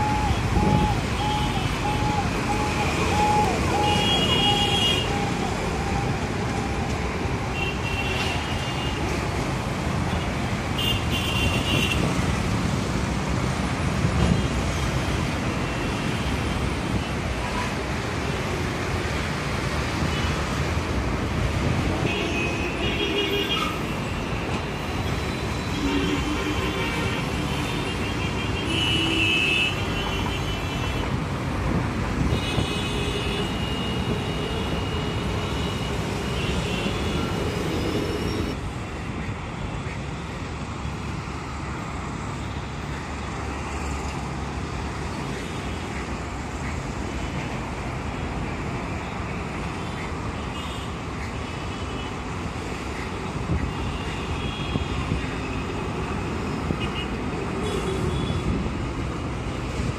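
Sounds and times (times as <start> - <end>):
road traffic noise: 0.0 - 59.9
vehicle horns: 25.4 - 31.2.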